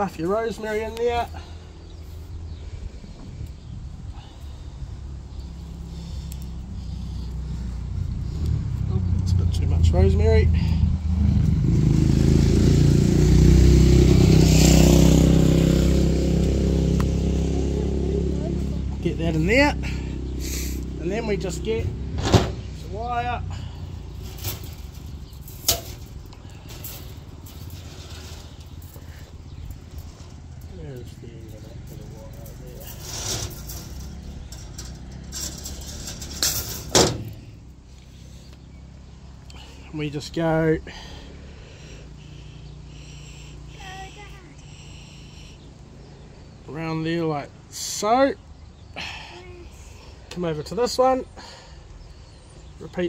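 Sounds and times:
engine running: 4.2s - 46.0s
wire rustling and jangling: 24.0s - 37.6s.

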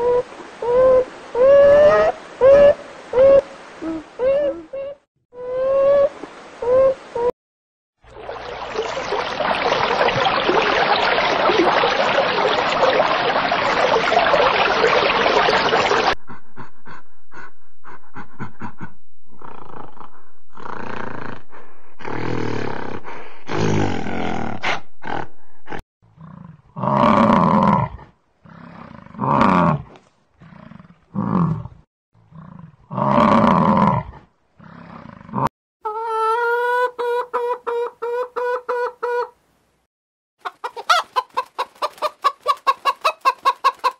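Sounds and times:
rushing water: 0.0s - 4.6s, 8.0s - 16.2s
gorilla roaring grunts: 19.4s - 35.5s
chickens clucking: 35.9s - 39.4s, 40.4s - 43.9s.

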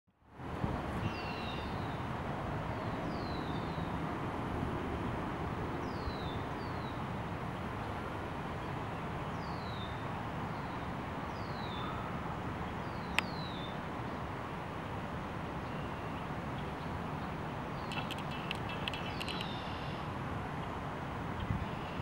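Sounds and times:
steady background noise: 0.2s - 22.0s
ducklings peeping: 17.9s - 19.5s
sharp click: 17.9s - 19.6s.

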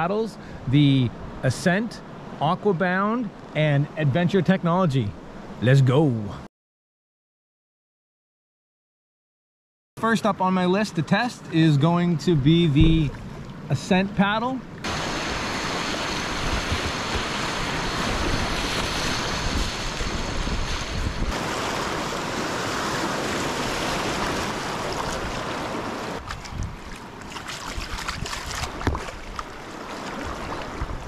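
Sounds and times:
paddle splashes: 13.0s - 13.7s, 14.7s - 31.0s
whitewater rushing: 14.8s - 26.2s
wind buffeting microphone: 15.3s - 29.5s, 30.1s - 31.0s.

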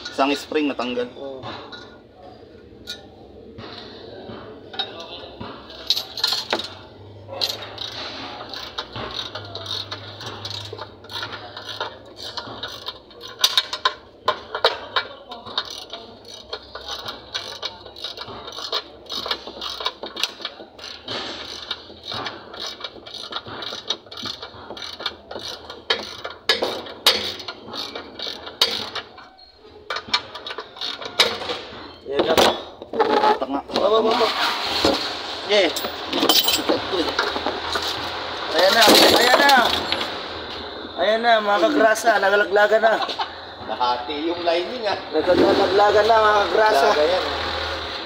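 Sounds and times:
ratchet wrench clicking: 7.4s - 29.3s, 29.9s - 31.5s.

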